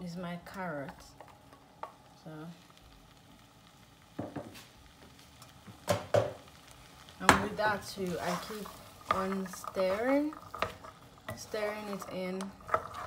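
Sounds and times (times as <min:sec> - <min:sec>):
faint sizzle from pan: 0:00.0 - 0:13.0
wooden spoon scraping and knocking: 0:08.1 - 0:13.0.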